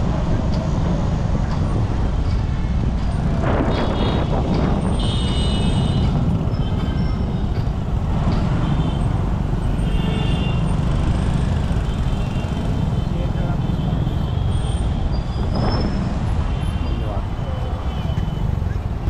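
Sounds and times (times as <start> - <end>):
traffic engines rumbling: 0.0 - 19.0.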